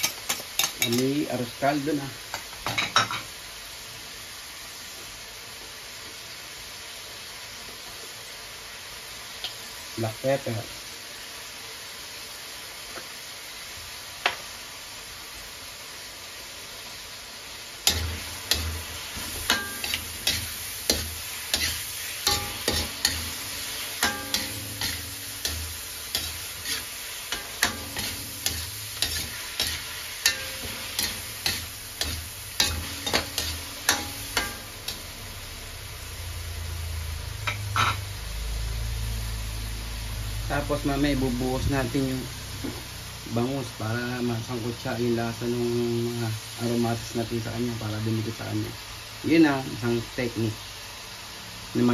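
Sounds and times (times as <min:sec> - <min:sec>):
food sizzling in wok: 0:00.0 - 0:51.9
metal spatula scraping wok: 0:17.8 - 0:35.2, 0:37.4 - 0:38.0.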